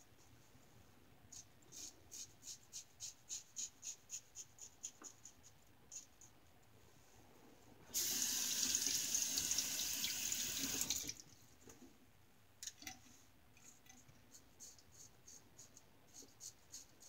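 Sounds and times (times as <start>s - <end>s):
bathroom tap running: 7.9s - 11.2s.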